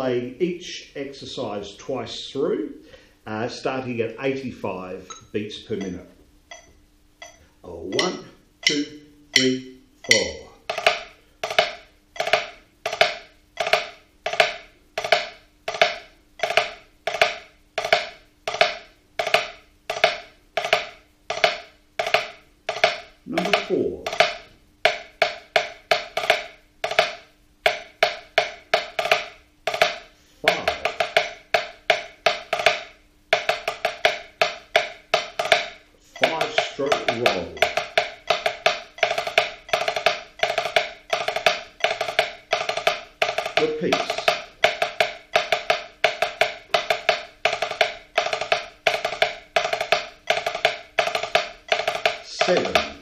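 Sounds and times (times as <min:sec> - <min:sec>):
drumsticks on practice pad: 0:05.0 - 0:53.0.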